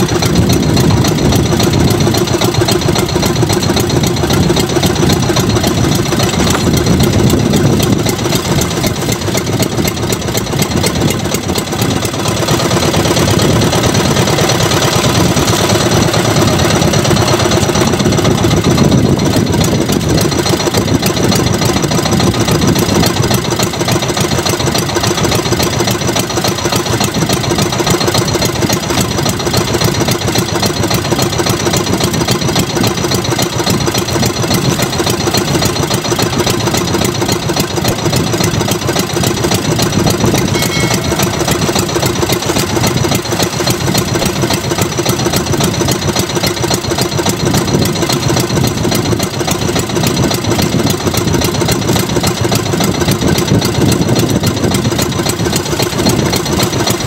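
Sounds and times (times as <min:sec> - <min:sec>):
boat engine running steadily: 0:00.0 - 0:57.0.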